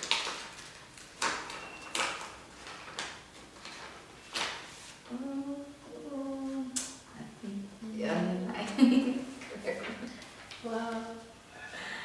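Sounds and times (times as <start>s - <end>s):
paper envelope rustling: 0.0s - 5.1s.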